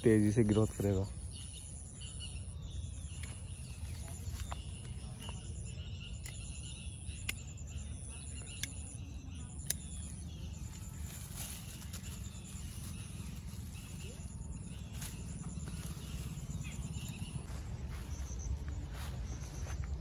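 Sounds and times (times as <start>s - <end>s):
low rumble: 1.0s - 20.0s
pruning shears snipping: 8.4s - 12.2s.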